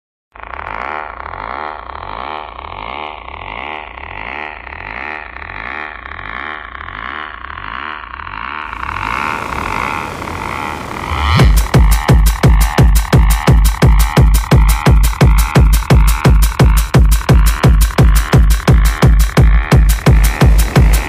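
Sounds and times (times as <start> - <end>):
pulsing buzzing synth drone: 0.4 - 21.0
rising hiss: 8.7 - 13.0, 19.9 - 21.0.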